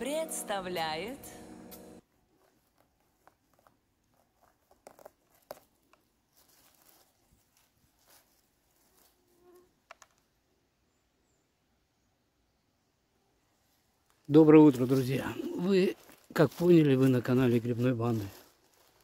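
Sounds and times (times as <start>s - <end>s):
dry leaf litter rustling: 6.3s - 9.2s, 14.7s - 19.0s.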